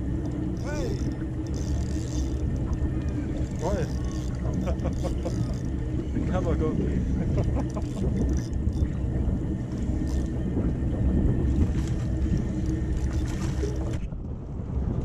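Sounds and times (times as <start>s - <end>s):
water around a boat: 0.0s - 15.0s
wind: 0.0s - 15.0s.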